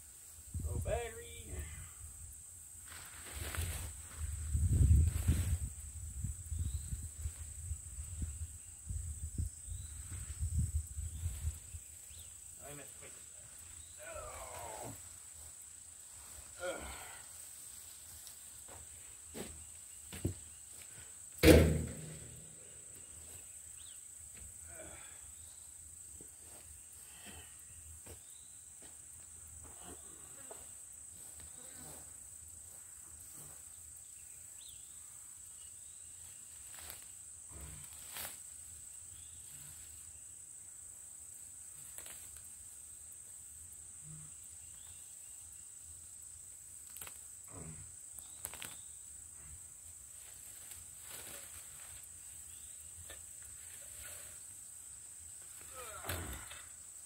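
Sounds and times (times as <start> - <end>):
insects droning: 0.0 - 57.0
weeds rustling and snapping: 41.8 - 42.5, 46.8 - 47.3, 48.2 - 48.9.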